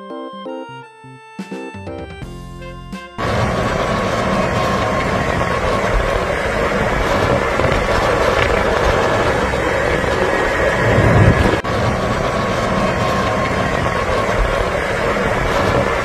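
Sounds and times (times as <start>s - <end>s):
vehicle engine running: 3.2s - 16.0s.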